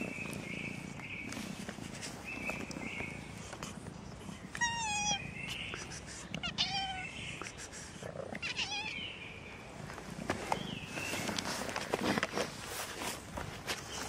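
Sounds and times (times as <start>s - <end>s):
cat meowing: 4.5s - 5.4s, 6.4s - 7.2s, 8.4s - 9.0s
small rustles and clicks: 9.8s - 14.0s.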